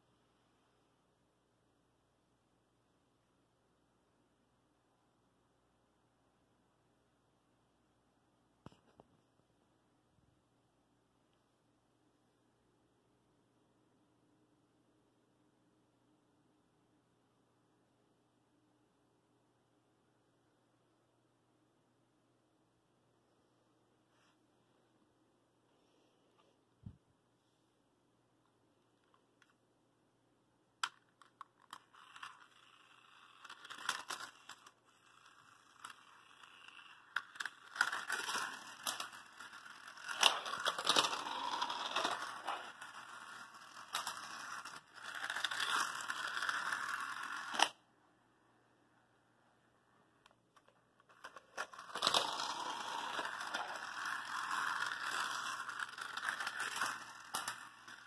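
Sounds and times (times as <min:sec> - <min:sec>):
toy car rattling on plastic track: 0:30.8 - 0:47.8, 0:51.0 - 0:58.0
toy car handling clicks: 0:35.8 - 0:47.8.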